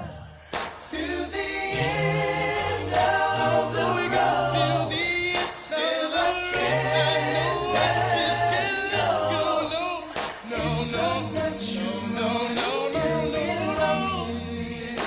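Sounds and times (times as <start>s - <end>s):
singing voices: 0.0s - 15.0s.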